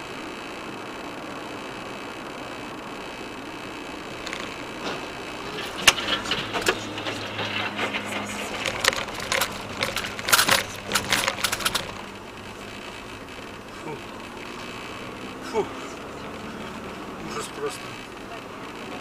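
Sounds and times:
engine and road hum: 0.0 - 19.0
car suspension knocks and clatters: 4.2 - 15.5.

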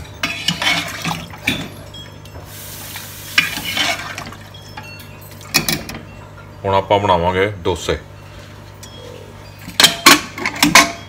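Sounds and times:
ladle scraping pot: 0.0 - 1.7, 3.3 - 4.8.

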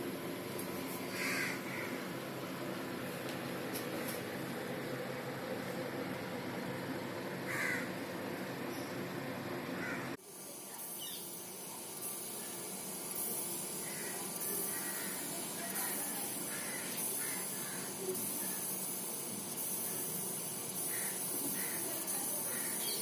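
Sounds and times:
steady hiss: 10.2 - 23.0.

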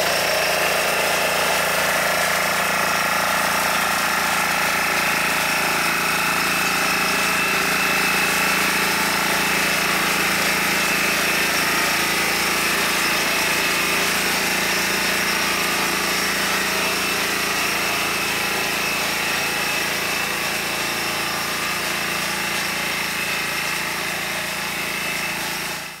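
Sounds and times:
diesel engine running: 0.0 - 26.0.

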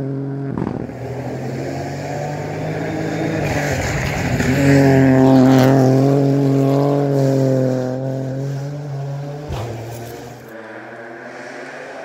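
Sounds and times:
car engine driving away: 0.0 - 12.0
sharp crack: 0.5 - 1.6, 9.5 - 10.6.

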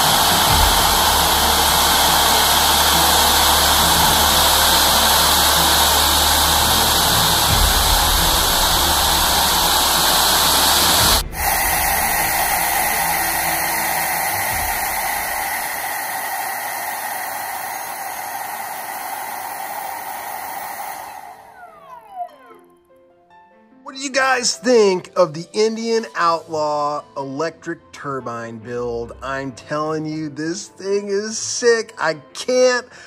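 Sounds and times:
electric turbine whooshing hiss: 0.0 - 21.6.

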